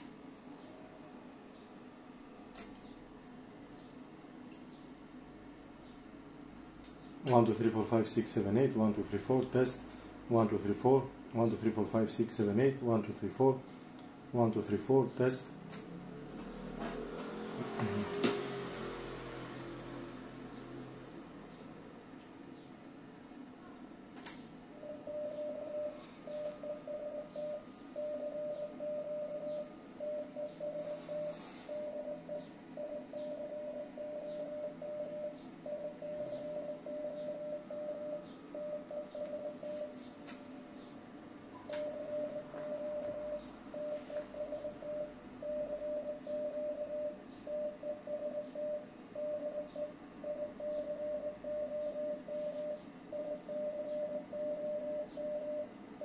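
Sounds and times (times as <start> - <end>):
morse code beeps: 24.8 - 40.0, 41.6 - 56.0.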